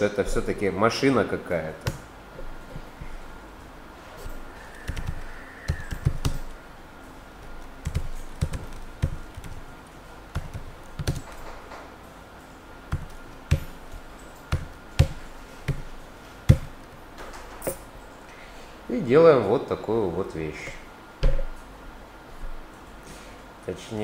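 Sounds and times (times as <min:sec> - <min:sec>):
typing on computer keyboard: 0:04.8 - 0:06.6, 0:07.5 - 0:09.6, 0:10.3 - 0:11.6.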